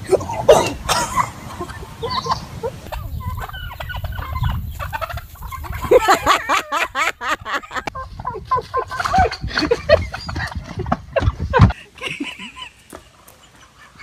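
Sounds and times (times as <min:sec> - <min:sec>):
turkey gobbling: 0:00.0 - 0:10.6.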